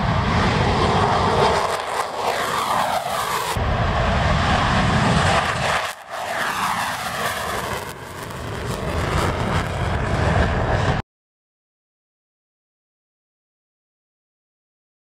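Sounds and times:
fighter jet taking off: 0.0 - 11.0.

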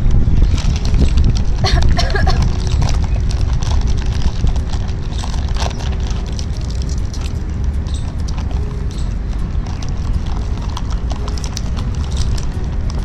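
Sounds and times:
steady low rumble: 0.0 - 13.0
plastic wrappers crinkling: 0.2 - 13.0.

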